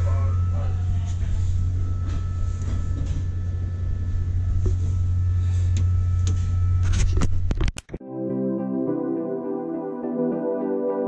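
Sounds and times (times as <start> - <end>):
low machinery drone: 0.0 - 7.5.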